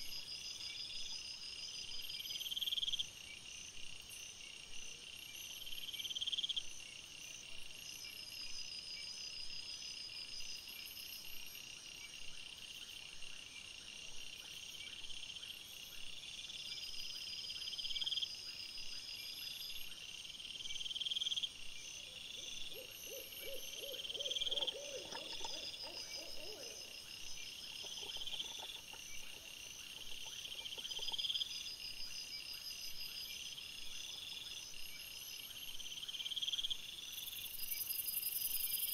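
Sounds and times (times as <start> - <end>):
high pulsing insect call: 0.0 - 38.9
insects trilling: 20.8 - 38.9.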